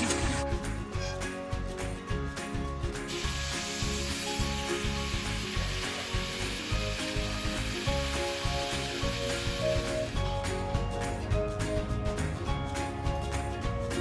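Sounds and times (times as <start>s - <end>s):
background music with beat: 0.0s - 14.0s
chicken deep-frying in oil: 3.0s - 10.6s.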